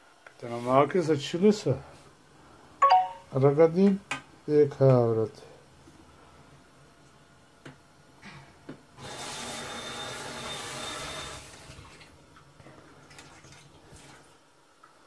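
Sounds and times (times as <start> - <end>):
water running from tap: 9.1 - 12.2.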